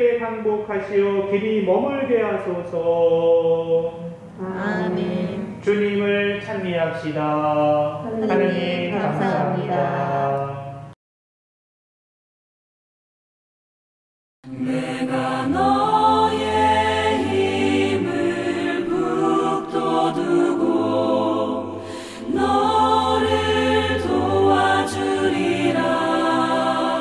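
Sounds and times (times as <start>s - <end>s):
choir singing: 3.6s - 5.7s, 7.7s - 10.8s, 14.5s - 27.0s.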